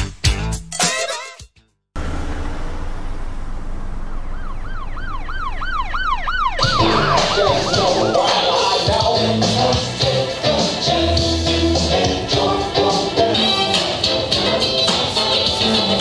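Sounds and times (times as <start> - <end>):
traffic rumble: 2.0 - 16.0
emergency vehicle siren yelping: 3.6 - 9.8.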